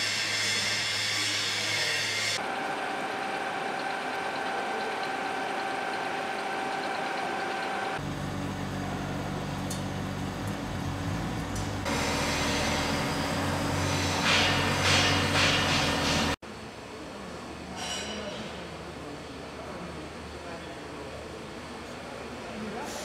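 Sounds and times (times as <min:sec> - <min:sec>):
lathe humming: 0:00.1 - 0:16.4.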